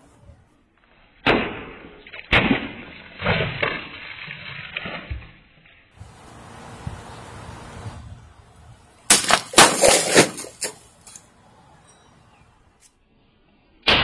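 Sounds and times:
steady outdoor hiss: 0.0 - 1.2, 5.6 - 14.0
blade striking plastic bottles: 9.1 - 10.8.

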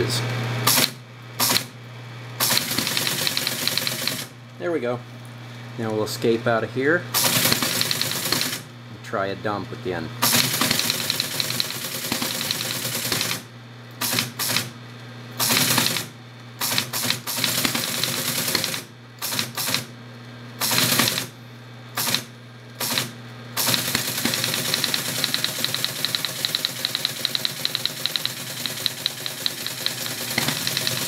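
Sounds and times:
machine hum: 0.0 - 31.0
teletype printing clatter: 2.4 - 4.3, 7.2 - 8.7, 10.2 - 13.4, 14.0 - 14.7, 15.4 - 19.9, 20.6 - 21.3, 22.0 - 31.0.

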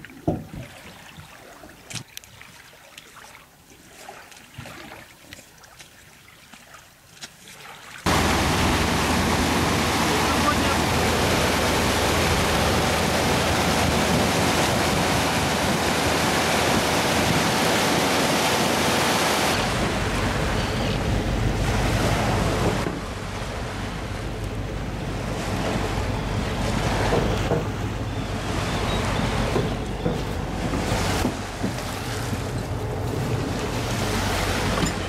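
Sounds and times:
bow wave splashing against hull: 0.0 - 35.0
motorboat engine: 8.1 - 35.0.

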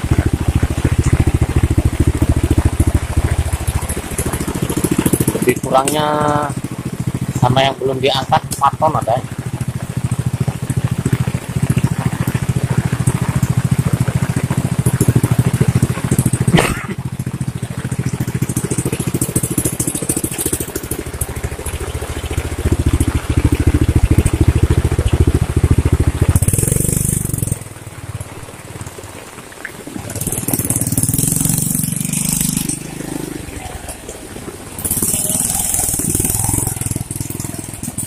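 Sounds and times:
motorcycle engine idling: 0.0 - 38.0.

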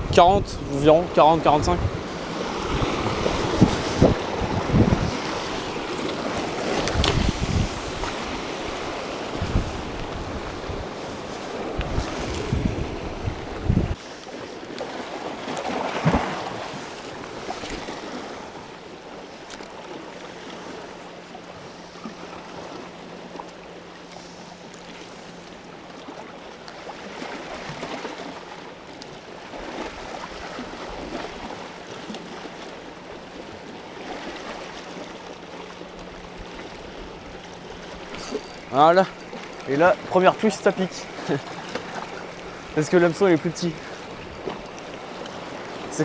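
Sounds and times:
wind buffeting microphone: 0.0 - 14.0
water lapping against rocks: 0.7 - 46.0.

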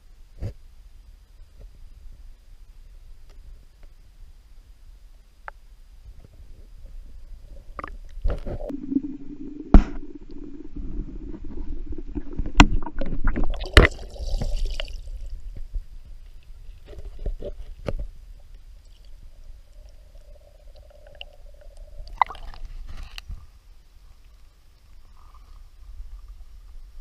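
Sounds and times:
muffled underwater creek rumble: 1.6 - 27.0
water splashing: 8.6 - 15.4.

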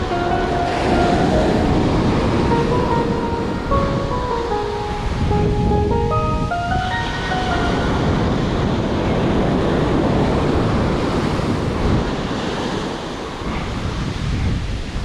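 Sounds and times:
ocean surf washing: 0.0 - 15.0
wind buffeting microphone: 4.9 - 15.0.

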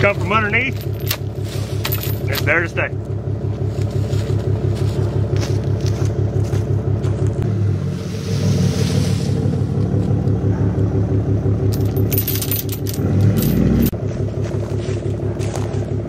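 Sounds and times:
vehicle engine running: 0.0 - 16.0
chain links clinking: 0.4 - 2.6, 11.7 - 14.0.

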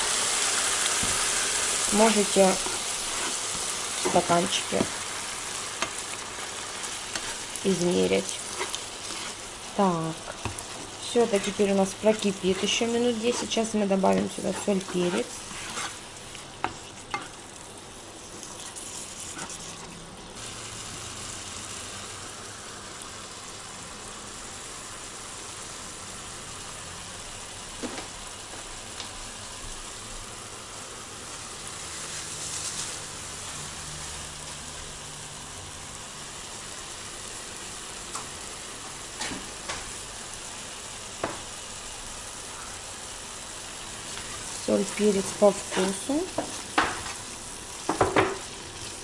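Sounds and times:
vegetables sizzling in a frying pan: 0.0 - 49.0.

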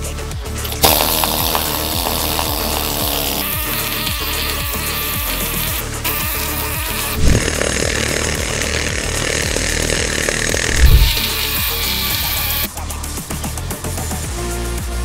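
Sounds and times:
needle scaler buzzing: 0.8 - 12.7
heavy thumps: 7.1 - 8.1.

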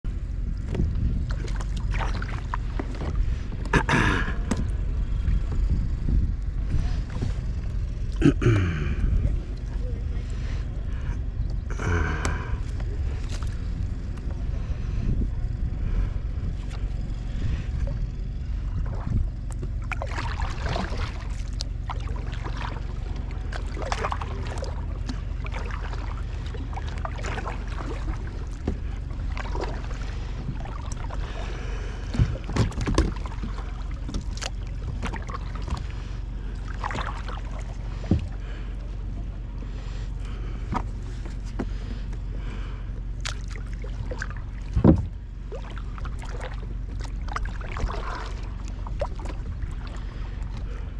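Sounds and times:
steady low rumble: 0.0 - 50.9
paddle strokes splashing: 1.2 - 3.8, 12.2 - 14.9, 16.6 - 50.9.

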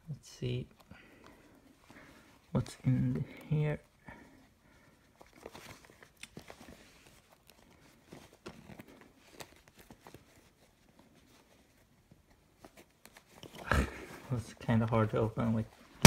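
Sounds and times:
faint clicks and scrapes of hands: 4.2 - 15.7.

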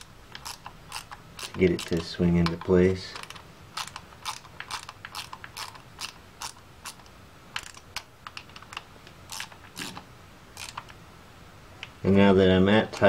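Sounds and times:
hand ratchet clicking: 0.0 - 10.0, 10.6 - 11.0.

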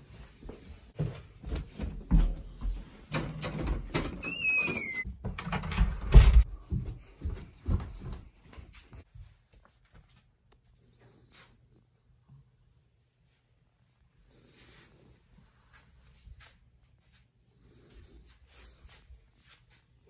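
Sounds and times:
footsteps on wooden stairs: 0.2 - 3.4, 6.3 - 9.0
door hinge squeak: 4.1 - 5.1.

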